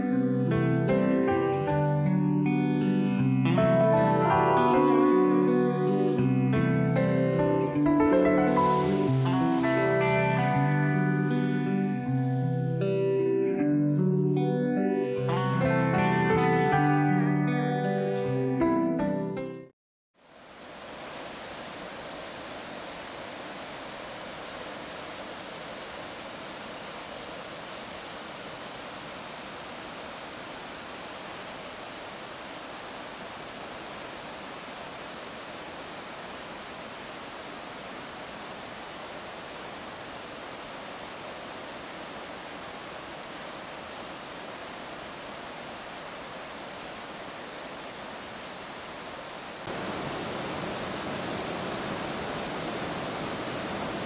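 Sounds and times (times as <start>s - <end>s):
creek rushing over rocks: 8.5s - 10.6s, 20.4s - 54.0s.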